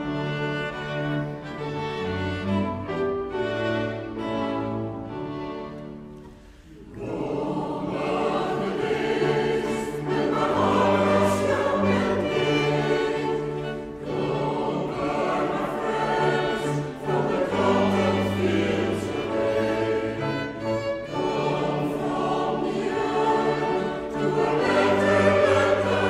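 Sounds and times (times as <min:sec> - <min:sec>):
choir singing: 0:00.0 - 0:26.0
string ensemble: 0:00.0 - 0:26.0.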